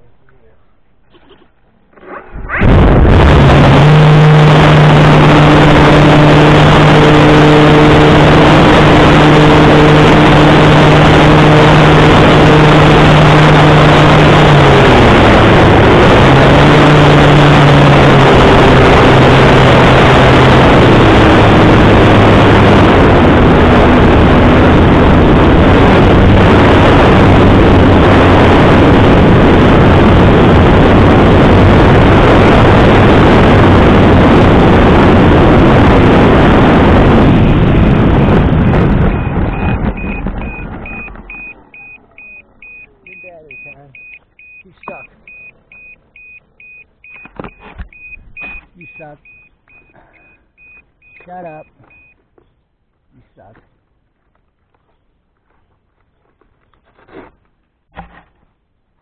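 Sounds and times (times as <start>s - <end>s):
humming propeller tone: 2.2s - 52.1s
air rushing over microphone: 2.3s - 44.1s.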